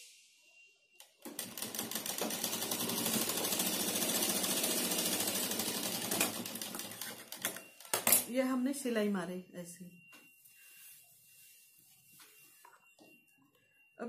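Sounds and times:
sewing machine stitching: 1.2s - 7.6s.

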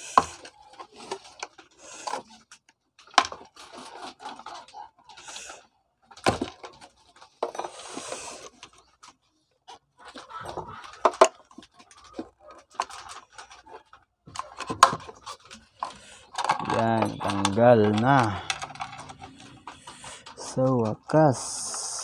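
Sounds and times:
tool clicking and scraping: 10.1s - 22.0s.

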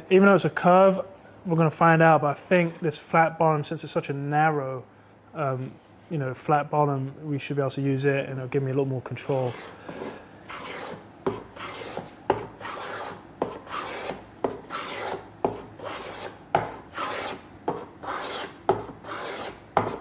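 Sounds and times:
spokeshave shaving wood: 9.4s - 11.0s, 11.6s - 17.4s, 18.0s - 20.0s.

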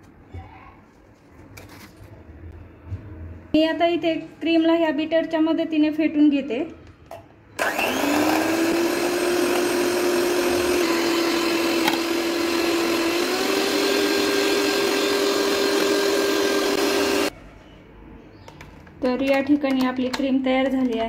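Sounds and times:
electric hand mixer whining: 7.6s - 17.3s.

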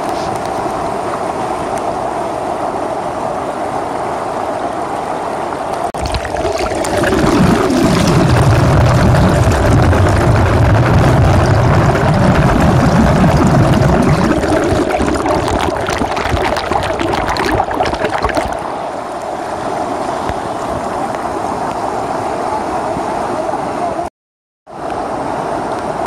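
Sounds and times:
underwater stream rushing: 0.0s - 22.4s
bubbles crackling: 5.8s - 18.7s.

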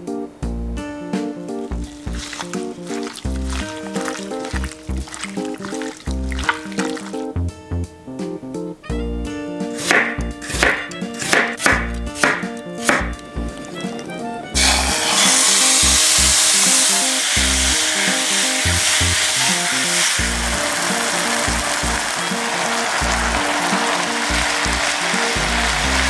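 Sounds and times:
light background music: 0.0s - 26.0s
meat sizzling in a frying pan: 1.7s - 7.2s, 14.6s - 26.0s.

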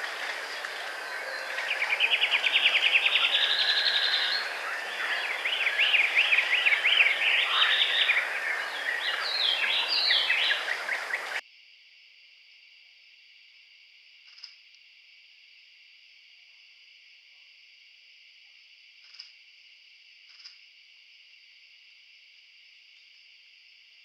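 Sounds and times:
songbird trilling: 0.0s - 11.4s
background hiss: 0.0s - 24.0s.

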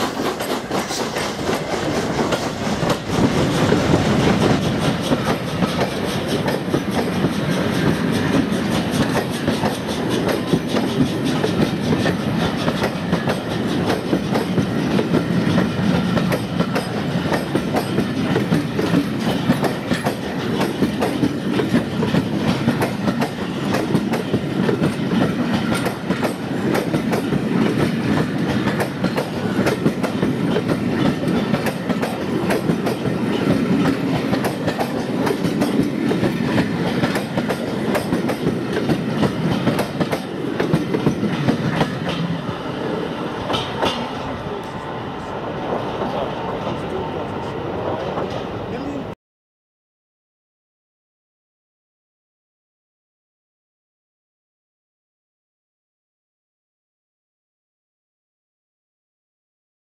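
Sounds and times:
wheels clacking over rail joints: 0.0s - 44.8s
train coaches rumbling: 0.0s - 49.2s.

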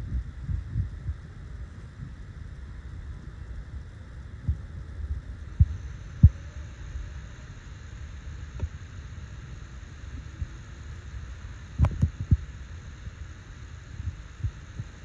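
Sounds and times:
wind rumble on microphone: 0.0s - 6.4s.

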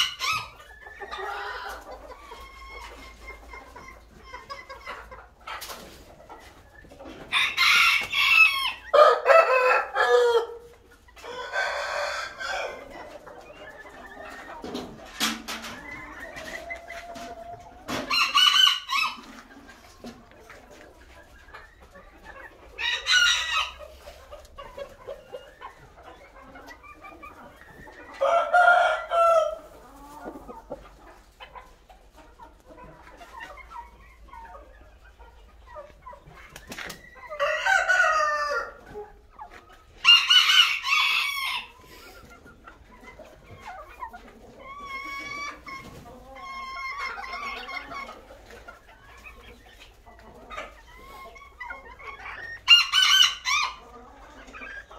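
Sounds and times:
roosters crowing: 0.0s - 3.0s, 7.2s - 13.0s, 17.2s - 19.3s, 22.8s - 23.9s, 28.0s - 30.4s, 37.2s - 38.9s, 40.0s - 42.0s, 52.2s - 54.0s.

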